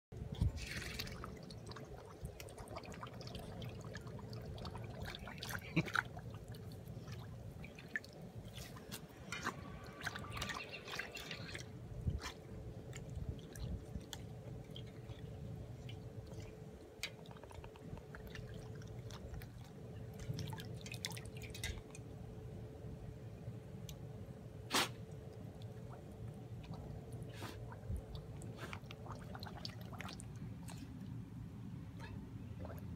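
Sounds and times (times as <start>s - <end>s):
water bubbling and splashing: 0.2s - 21.9s, 25.3s - 31.3s, 32.4s - 32.9s
water drips and small clicks: 0.2s - 22.2s, 23.8s - 24.1s, 25.1s - 27.2s
faint steady hum: 0.2s - 32.9s.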